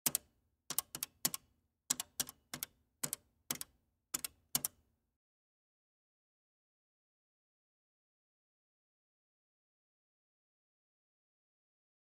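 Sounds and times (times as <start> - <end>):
pay phone buttons clicking: 0.0 - 4.7.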